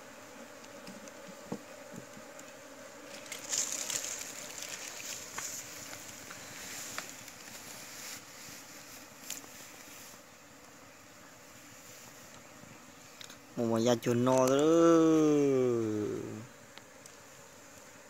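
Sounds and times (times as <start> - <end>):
bees buzzing: 0.0 - 18.0
scratchy rustling: 3.0 - 10.2.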